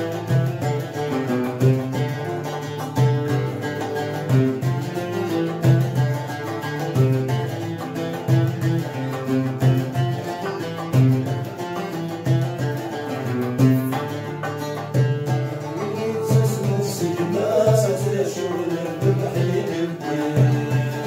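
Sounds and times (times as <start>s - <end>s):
acoustic guitar: 0.0s - 21.0s
hand drum beat: 0.0s - 21.0s
mandoles playing melody: 0.0s - 21.0s
men singing: 15.5s - 21.0s.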